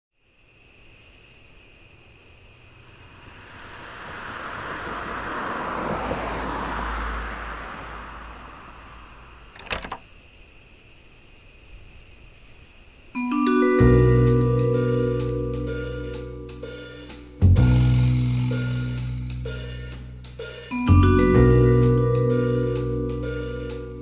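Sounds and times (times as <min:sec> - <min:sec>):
vehicle passing by: 0:02.6 - 0:09.5
high-pitched electrical whine: 0:02.7 - 0:06.2
door handle and latch clicks: 0:09.6 - 0:10.0.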